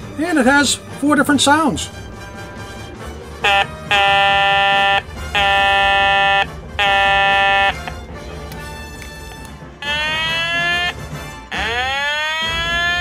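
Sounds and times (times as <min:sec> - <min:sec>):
electronic warning horn blasts: 0:01.9 - 0:08.0, 0:09.8 - 0:13.0.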